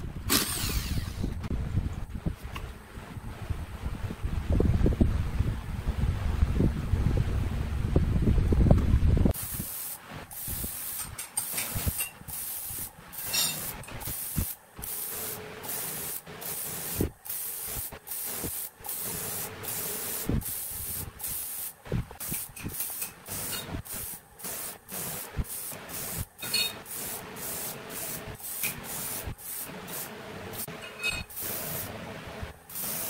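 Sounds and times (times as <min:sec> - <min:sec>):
spray gun hissing in bursts: 0:09.3 - 0:33.0.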